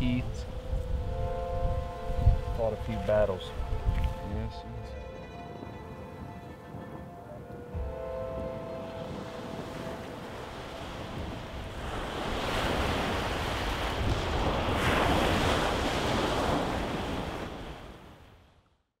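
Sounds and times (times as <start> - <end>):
wind: 0.0 - 19.0
waves breaking on pebble shore: 9.1 - 18.2.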